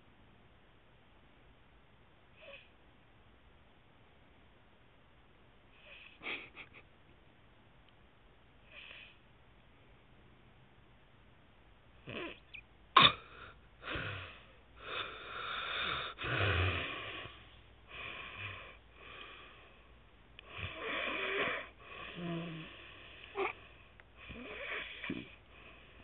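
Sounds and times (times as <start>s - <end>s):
man snoring wheezily: 13.0s - 17.4s, 20.5s - 23.6s, 24.2s - 25.4s.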